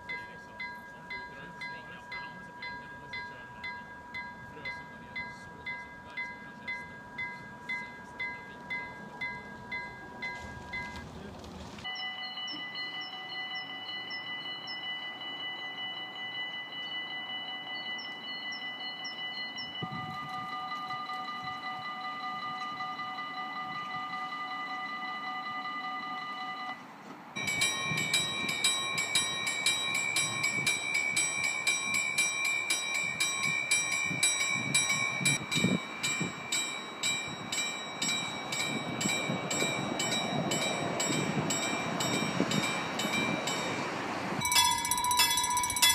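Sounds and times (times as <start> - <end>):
warning bell ringing rapidly: 0.0 - 11.0, 11.8 - 26.8, 27.4 - 45.9
electronic warning chime: 11.9 - 26.8.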